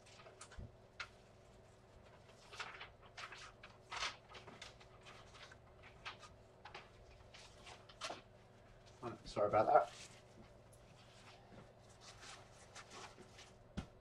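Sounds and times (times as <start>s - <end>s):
faint low hum: 0.0s - 14.0s
soft rustles: 0.0s - 14.0s.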